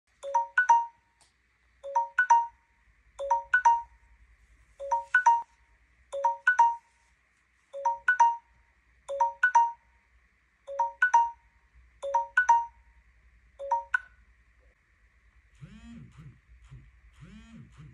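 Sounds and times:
phone timer rising chimes: 0:00.2 - 0:01.0, 0:01.8 - 0:02.6, 0:03.2 - 0:04.0, 0:04.8 - 0:06.9, 0:07.8 - 0:08.5, 0:09.1 - 0:09.8, 0:10.7 - 0:12.8, 0:13.6 - 0:14.1.

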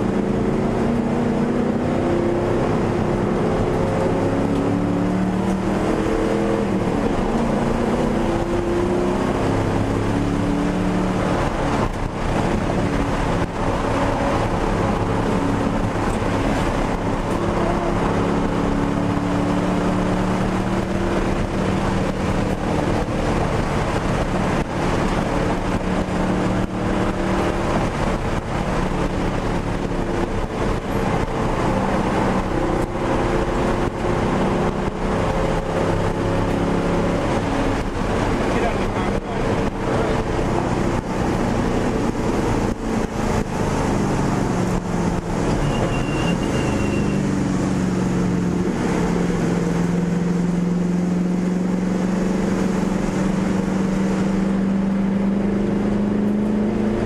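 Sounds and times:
car engine accelerating and shifting: 0:00.0 - 0:57.0.

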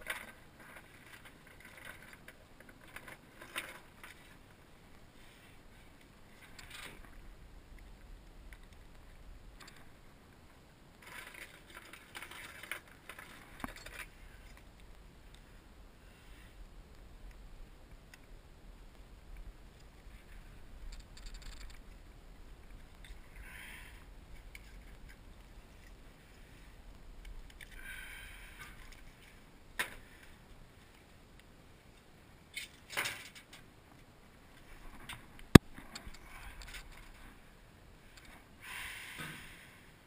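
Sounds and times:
rustling and scraping: 0:00.0 - 0:10.0, 0:11.0 - 0:15.0.

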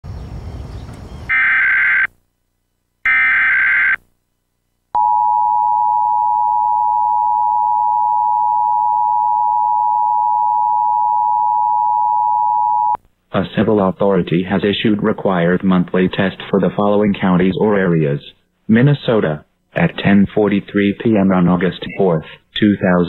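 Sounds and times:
warbling data tone bursts: 0:03.1 - 0:04.0
steady two-tone alert signal: 0:05.0 - 0:13.0.

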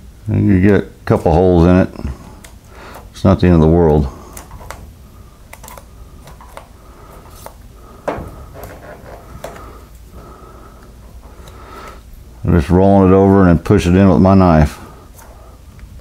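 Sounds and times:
loud knock: 0:08.1 - 0:08.8.

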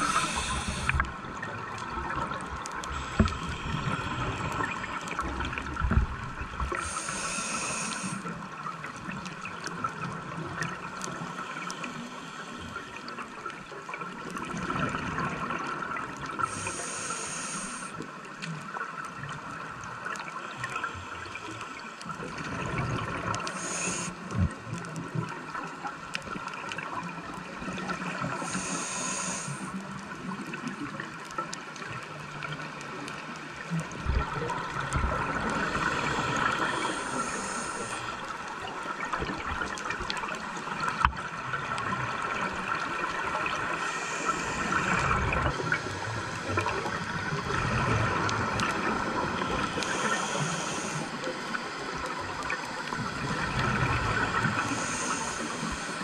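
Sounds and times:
high hiss of breathing: 0:00.0 - 0:01.1, 0:02.9 - 0:05.0, 0:06.7 - 0:08.3, 0:16.4 - 0:18.0, 0:23.4 - 0:24.2, 0:28.3 - 0:29.8, 0:35.6 - 0:38.3, 0:43.6 - 0:46.6, 0:49.5 - 0:51.5, 0:54.3 - 0:56.0
scuba exhale bubbling underwater: 0:33.7 - 0:56.0.

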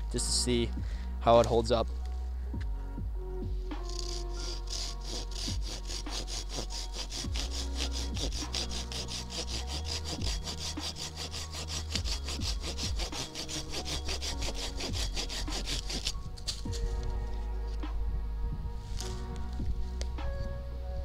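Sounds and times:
saw rasping through branch: 0:03.8 - 0:17.0.

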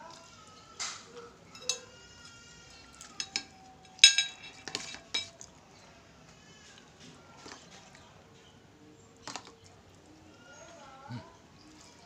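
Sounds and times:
metal spoon clinking on plate: 0:01.5 - 0:01.9, 0:03.1 - 0:05.3.

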